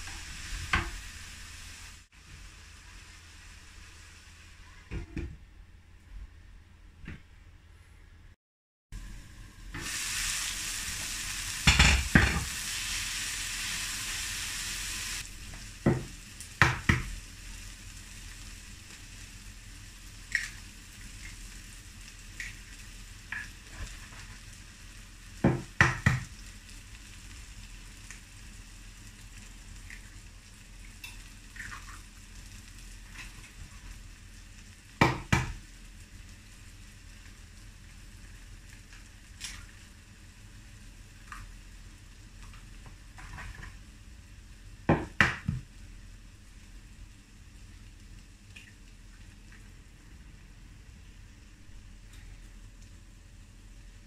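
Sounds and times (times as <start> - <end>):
vegetables sizzling in a frying pan: 0.0 - 5.0, 9.0 - 49.5.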